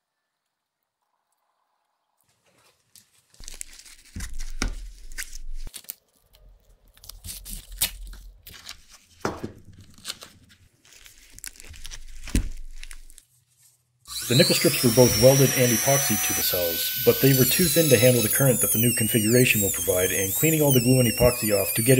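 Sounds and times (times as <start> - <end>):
tape tearing and crinkling: 2.6 - 13.3.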